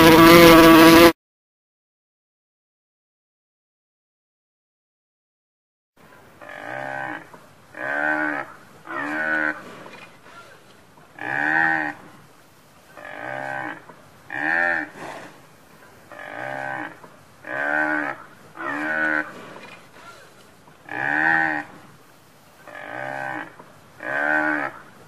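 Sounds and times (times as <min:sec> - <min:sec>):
water buffalo mooing: 0:00.0 - 0:01.1, 0:06.4 - 0:09.9, 0:11.2 - 0:12.0, 0:13.0 - 0:15.4, 0:16.1 - 0:20.2, 0:20.8 - 0:21.9, 0:22.7 - 0:24.9.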